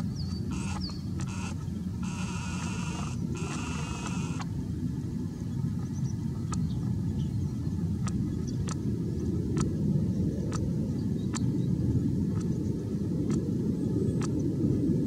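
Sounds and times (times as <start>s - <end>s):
faint sharp ticks: 0.2s - 4.5s.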